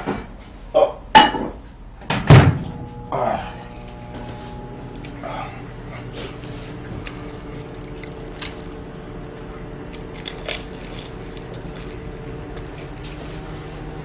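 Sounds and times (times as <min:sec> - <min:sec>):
pastry crackling and crunching: 0:04.8 - 0:14.0
chewing: 0:04.9 - 0:14.0.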